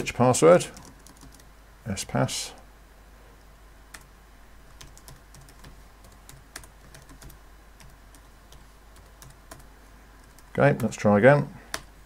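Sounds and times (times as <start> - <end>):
computer keyboard keystrokes: 0.8 - 1.5, 4.7 - 10.9.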